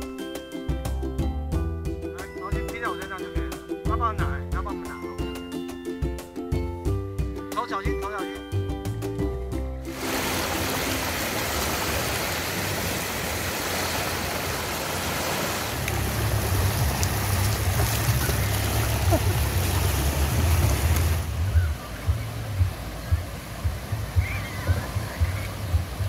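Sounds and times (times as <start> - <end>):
small waves breaking: 9.9 - 26.0.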